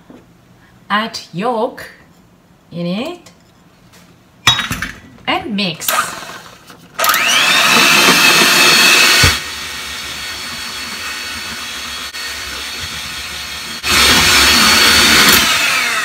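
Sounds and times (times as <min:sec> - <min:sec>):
electric mixer motor whine: 0:05.9 - 0:16.0.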